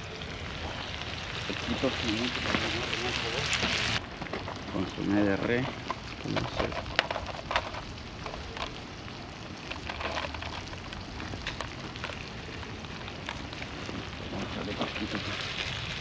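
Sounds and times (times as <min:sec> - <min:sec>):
food sizzling in a pan: 0:00.0 - 0:06.4, 0:10.9 - 0:16.0
wood fire crackling: 0:00.0 - 0:16.0.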